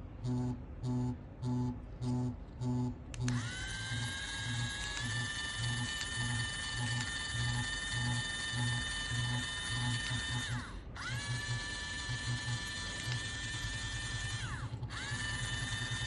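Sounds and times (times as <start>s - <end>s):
device motor whining and throbbing: 3.3s - 16.0s.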